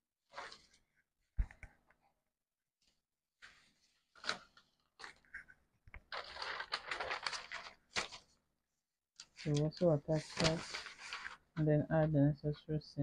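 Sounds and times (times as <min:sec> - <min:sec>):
paper rustling and crinkling: 0:00.2 - 0:00.9, 0:02.8 - 0:08.4, 0:09.2 - 0:11.6.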